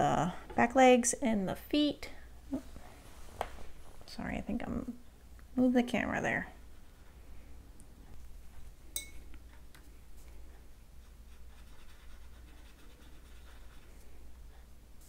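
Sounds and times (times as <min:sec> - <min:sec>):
low steady hum: 0:00.0 - 0:15.0
paintbrush strokes on paper: 0:06.3 - 0:07.6, 0:09.9 - 0:15.0.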